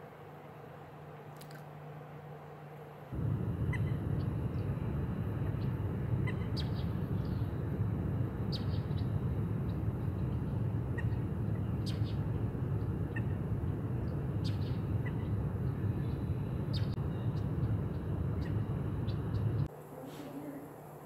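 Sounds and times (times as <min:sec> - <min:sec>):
steady low rumble: 0:03.1 - 0:19.7
high bird chirps: 0:05.6 - 0:07.6, 0:08.4 - 0:13.4.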